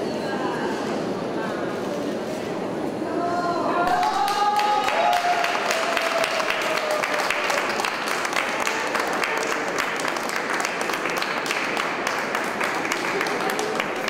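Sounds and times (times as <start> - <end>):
crowd applauding: 3.8 - 14.0.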